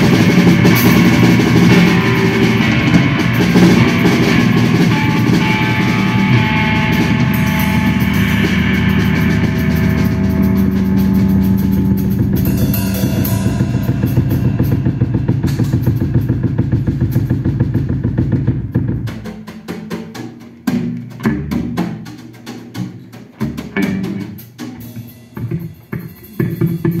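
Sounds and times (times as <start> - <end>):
electric bass drone: 0.0 - 19.1
drum kit playing: 0.0 - 27.0.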